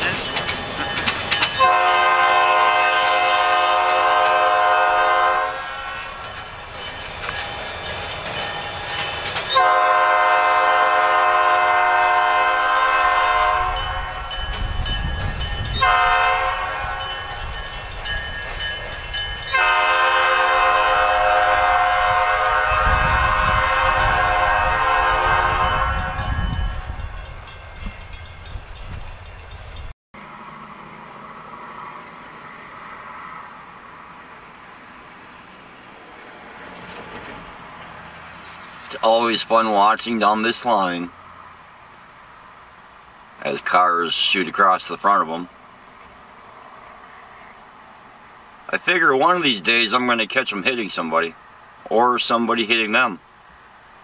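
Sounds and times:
train rumbling on rails: 0.0s - 54.0s
locomotive air horn blasts: 1.6s - 6.2s, 9.6s - 14.3s, 15.8s - 17.2s, 19.5s - 27.1s.

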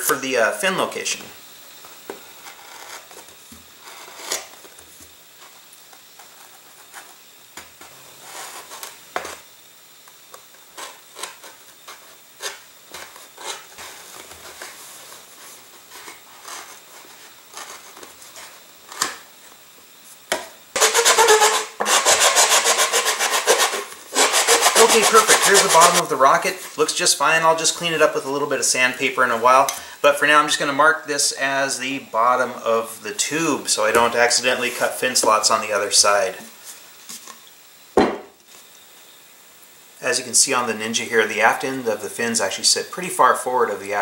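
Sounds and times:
hobby knife scraping cardboard: 2.4s - 4.6s, 7.8s - 9.5s, 10.7s - 19.2s, 20.8s - 26.1s
fast rasping: 20.8s - 26.7s.

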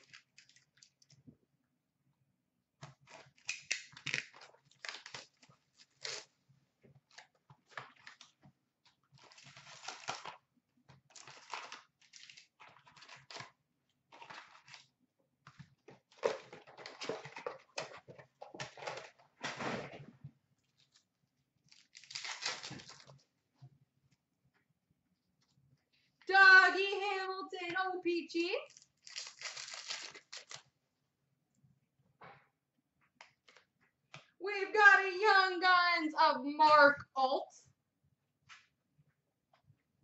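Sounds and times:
foil packs crinkling and tearing: 0.0s - 1.1s, 2.9s - 6.3s, 9.1s - 10.4s, 11.1s - 13.6s, 14.2s - 14.9s, 21.7s - 23.2s, 28.7s - 30.7s.

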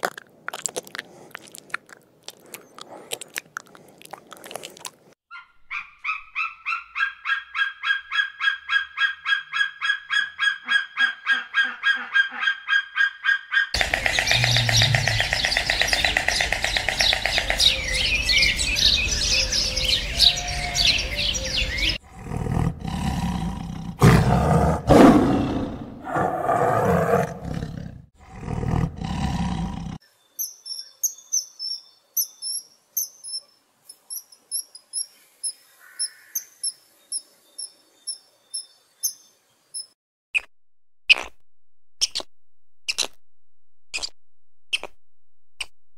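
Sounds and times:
dense animal chirping and calling: 5.3s - 22.0s
loud sweeping animal calls: 5.8s - 18.2s
small bird high chirps: 13.9s - 22.0s, 30.2s - 40.5s.

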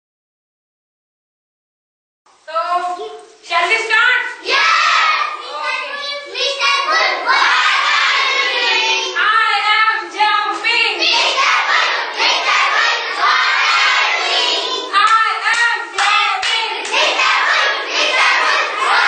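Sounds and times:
children singing in chorus: 4.5s - 5.4s, 6.4s - 9.2s, 11.0s - 15.0s, 16.0s - 19.0s
hand claps: 15.0s - 17.2s.

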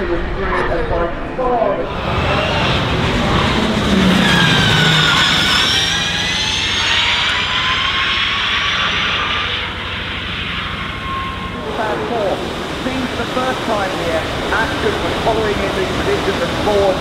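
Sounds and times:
tyre and road noise: 1.8s - 17.0s
electric motor whine: 1.9s - 15.4s.

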